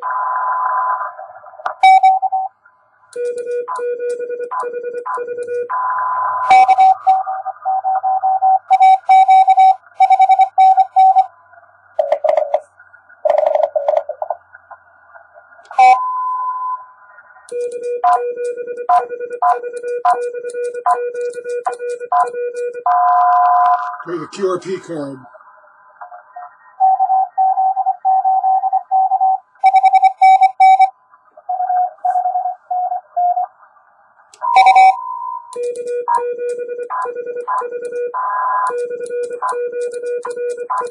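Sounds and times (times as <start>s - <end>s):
received morse code beeps: 1.7s - 2.5s, 3.2s - 11.3s, 12.0s - 14.3s, 15.7s - 16.8s, 17.5s - 25.2s, 26.8s - 30.9s, 34.4s - 40.9s
morse code sidetone: 1.8s - 2.5s, 3.2s - 11.3s, 12.0s - 12.6s, 15.7s - 16.8s, 17.5s - 25.1s, 26.8s - 30.9s, 34.4s - 40.9s
loud high tone: 24.1s - 25.3s.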